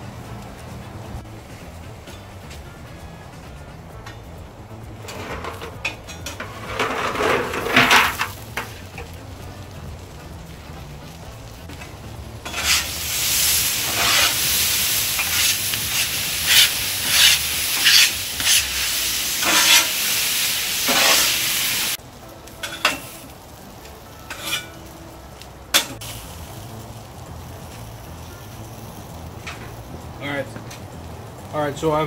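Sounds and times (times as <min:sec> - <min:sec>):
potatoes sizzling on griddle: 0:00.0 - 0:32.0
metal spatula scraping: 0:05.0 - 0:08.4, 0:12.4 - 0:13.0, 0:13.8 - 0:14.5, 0:15.2 - 0:20.1, 0:20.8 - 0:21.4, 0:24.2 - 0:24.8.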